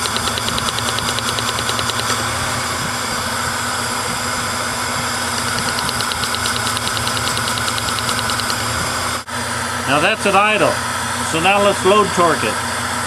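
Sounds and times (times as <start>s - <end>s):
fast light ticking: 0.0s - 2.2s, 5.4s - 8.6s.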